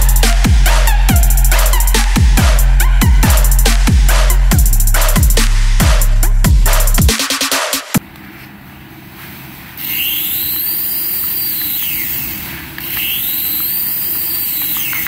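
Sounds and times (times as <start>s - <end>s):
background music: 0.0s - 8.0s
toy helicopter rotor motors whining: 9.8s - 15.0s.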